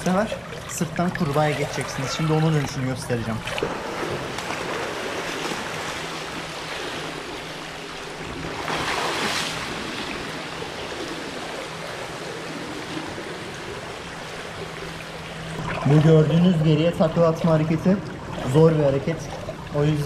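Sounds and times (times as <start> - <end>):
pool water splashing: 0.0 - 20.0
loud splash of swimmer turning: 8.5 - 9.9.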